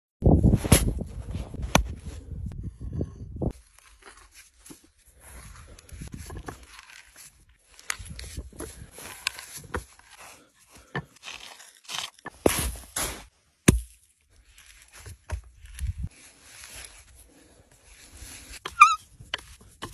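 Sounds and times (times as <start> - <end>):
hand auger crunching through wood: 3.5 - 17.1.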